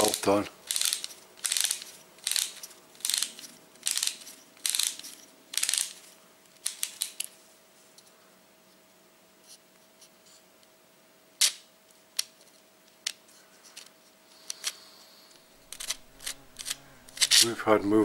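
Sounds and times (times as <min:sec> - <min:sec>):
sharp wooden clicks: 0:00.0 - 0:07.3, 0:15.6 - 0:17.5
wooden model parts rubbing: 0:00.0 - 0:07.3, 0:15.6 - 0:18.0.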